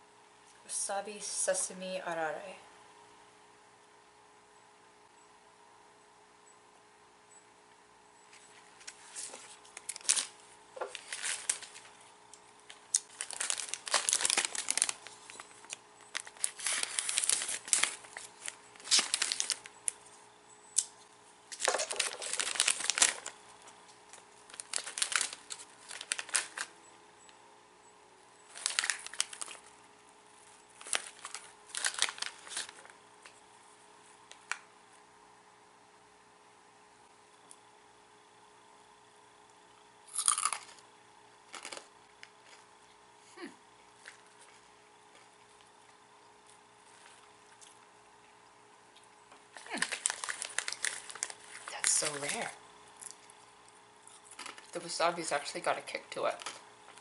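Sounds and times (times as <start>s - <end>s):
plastic snack bag crinkling: 8.5s - 20.2s, 21.5s - 26.8s, 28.5s - 33.4s, 40.1s - 40.8s, 41.4s - 42.7s, 43.9s - 47.9s, 49.4s - 57.0s.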